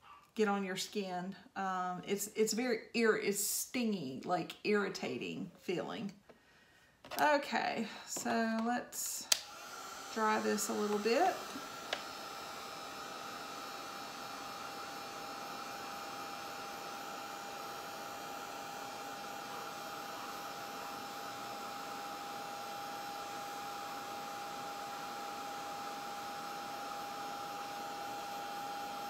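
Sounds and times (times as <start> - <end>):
heat gun blowing hot air: 8.2 - 29.0.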